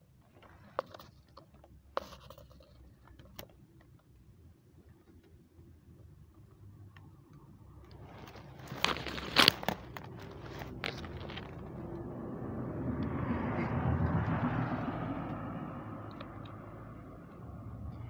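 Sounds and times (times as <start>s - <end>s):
rumble: 4.8s - 18.0s.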